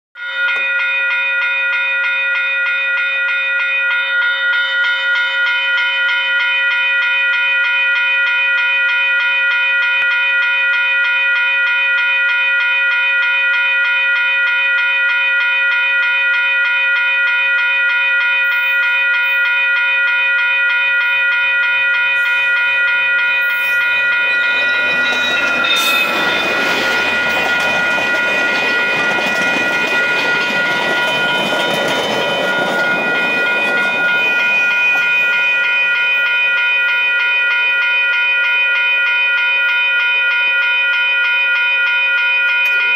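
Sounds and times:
level crossing bell ringing: 0.2s - 42.9s
diesel locomotive rumbling: 21.8s - 36.9s
train wheels clattering: 23.8s - 36.4s.

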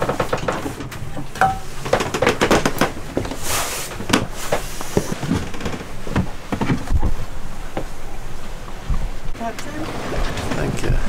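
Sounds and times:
cup handling clatter: 1.4s - 1.8s.

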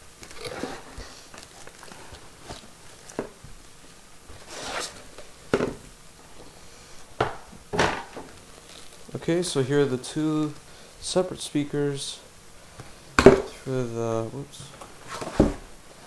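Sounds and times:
cardboard and foam rustling: 4.3s - 5.3s, 14.6s - 16.0s.

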